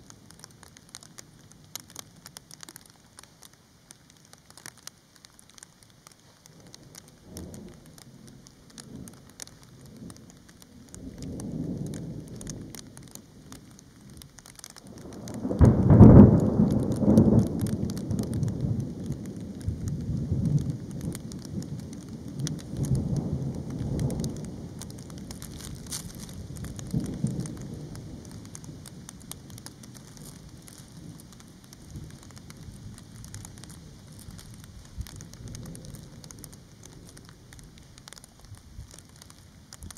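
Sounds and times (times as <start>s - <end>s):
light rain falling: 0.0s - 39.9s
thunder rumbling: 6.6s - 39.9s
loud thunder clap: 15.0s - 28.6s.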